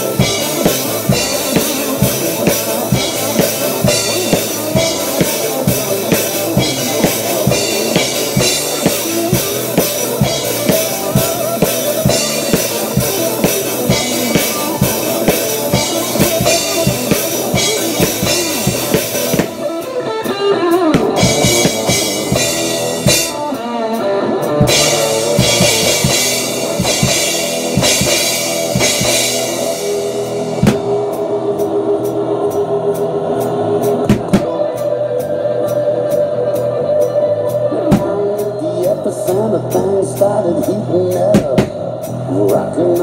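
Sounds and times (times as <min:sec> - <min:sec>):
recorded rock guitar: 0:00.0 - 0:43.0
bass drum and snare hits: 0:30.6 - 0:31.0, 0:34.0 - 0:34.6.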